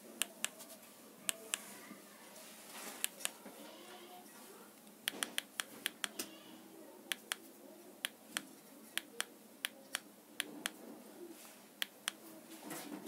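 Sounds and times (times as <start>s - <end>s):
remote control button clicks: 5.1s - 6.3s.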